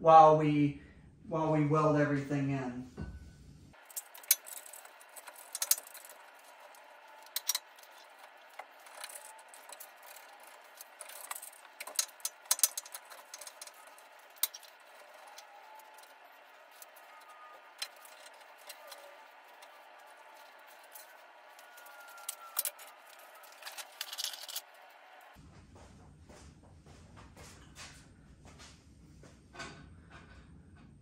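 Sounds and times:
metal clinks and knocks: 3.0 - 24.6.

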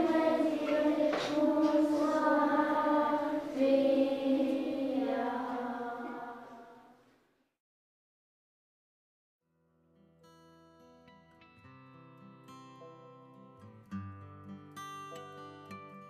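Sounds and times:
choir singing held notes: 0.0 - 6.9.

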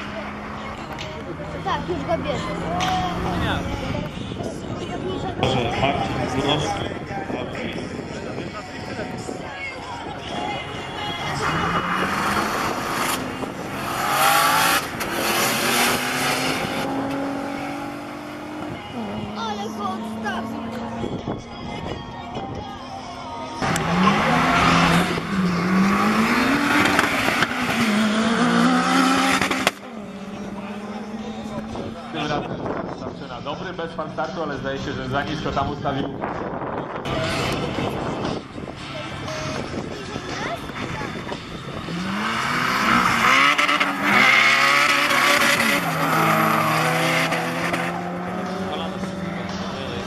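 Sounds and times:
car engine accelerating hard: 11.0 - 21.4, 23.6 - 33.1, 39.0 - 50.0.

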